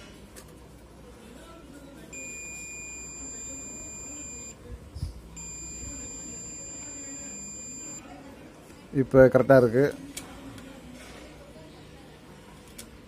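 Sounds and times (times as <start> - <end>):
multimeter continuity beep: 2.1 - 4.6, 5.4 - 8.0.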